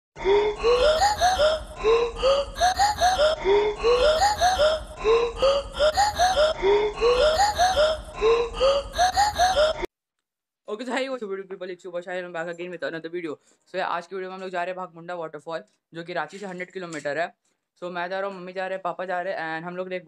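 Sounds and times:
rising voice-like notes: 0.2s - 9.8s.

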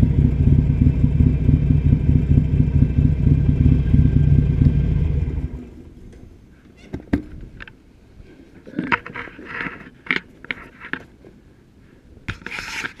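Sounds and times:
scraping and rustling handling noises: 8.2s - 11.4s.

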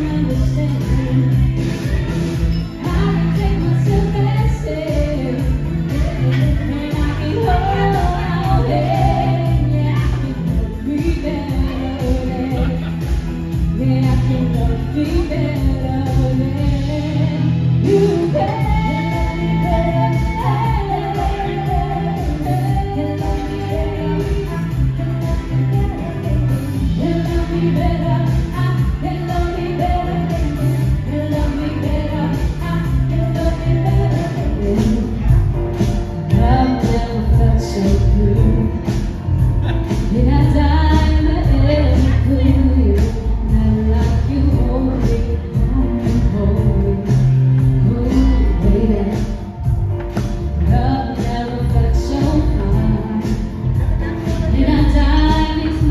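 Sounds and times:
music with bass and beat: 0.0s - 55.9s
women singing into microphones: 0.0s - 55.9s.

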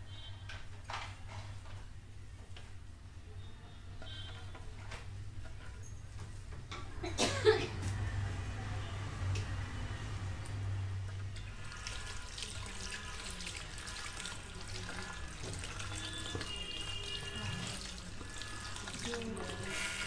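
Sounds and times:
water splashing over hair: 11.7s - 20.0s.

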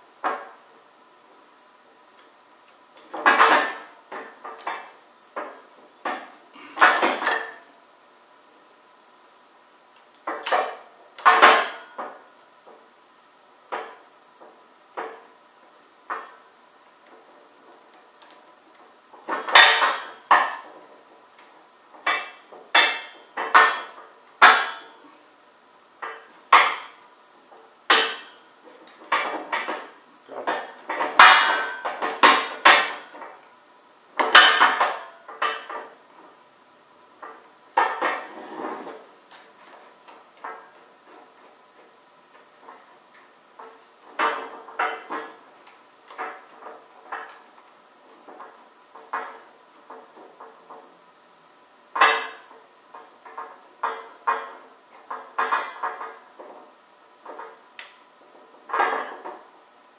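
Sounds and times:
metal clanks of beam trolley: 3.0s - 7.7s, 10.3s - 12.8s, 19.2s - 20.9s, 21.9s - 25.0s, 26.0s - 27.0s, 27.9s - 33.4s, 34.2s - 36.3s, 37.2s - 41.4s, 43.6s - 45.5s, 51.9s - 58.0s, 58.6s - 59.5s.

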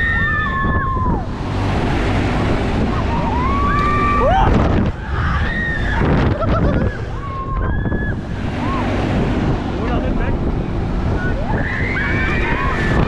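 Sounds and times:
wind rushing on microphone: 0.0s - 13.0s
riders screaming: 3.0s - 8.9s, 11.2s - 13.0s.

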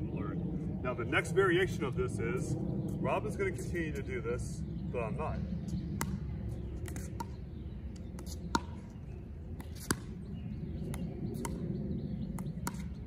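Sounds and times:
low background rumble: 0.0s - 13.0s
paddles striking pickleball: 8.1s - 9.0s, 12.4s - 13.0s.

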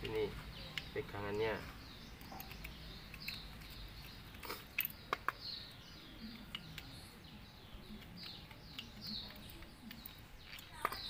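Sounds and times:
birds chirping: 0.0s - 11.0s
clicks of small plastic parts: 2.2s - 5.5s, 6.3s - 7.0s, 8.0s - 11.0s.

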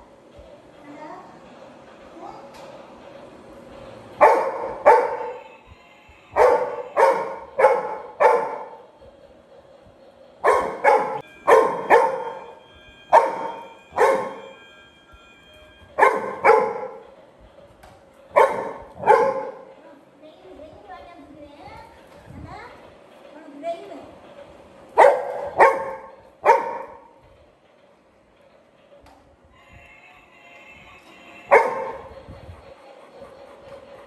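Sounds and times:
dog barking: 4.2s - 5.4s, 6.4s - 8.8s, 10.4s - 12.5s, 13.1s - 14.4s, 16.0s - 17.0s, 18.3s - 19.7s, 25.0s - 27.1s, 31.5s - 32.1s.

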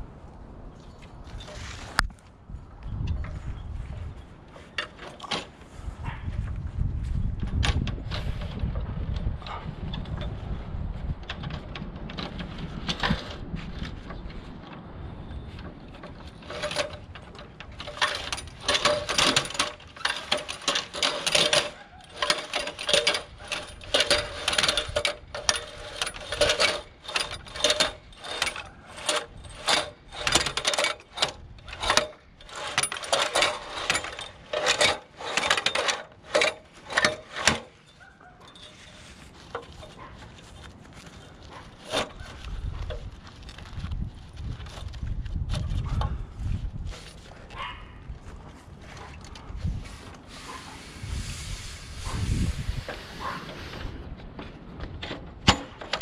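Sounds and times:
ladder rungs clacking and rattling: 4.5s - 6.5s, 7.2s - 43.8s, 52.8s - 56.0s.

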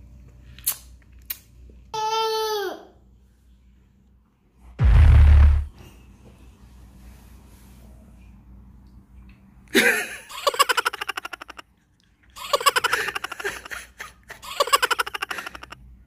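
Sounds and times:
person giggling: 12.4s - 15.8s.

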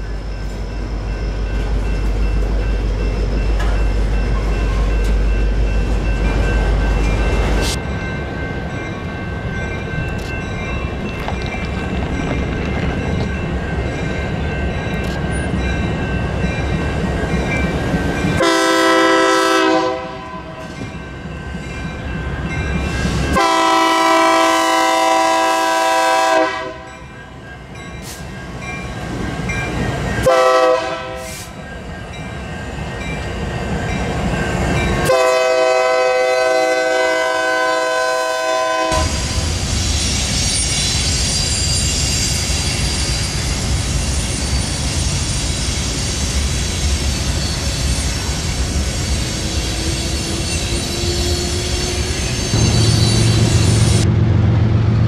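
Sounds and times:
train wheels rumbling and clattering: 0.0s - 37.4s, 38.8s - 55.0s
locomotive air horn blasts: 18.4s - 20.6s, 23.3s - 26.9s, 30.2s - 31.5s, 35.0s - 39.4s.

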